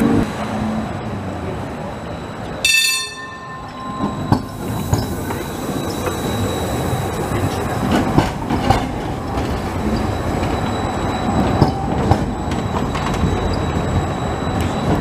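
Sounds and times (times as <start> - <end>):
tram wheels rumbling on rails: 0.0 - 15.0.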